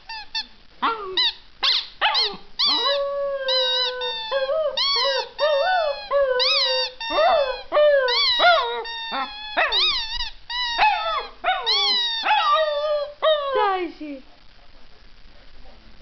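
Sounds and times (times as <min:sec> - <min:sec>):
dog howling: 0:02.2 - 0:10.1, 0:10.8 - 0:13.7.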